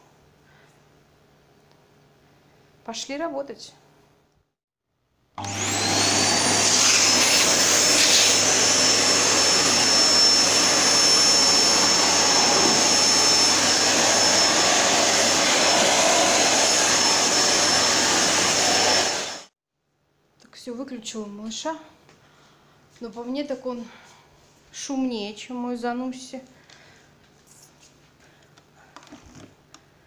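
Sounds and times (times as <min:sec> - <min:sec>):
vacuum cleaner motor whine: 0:05.4 - 0:19.5.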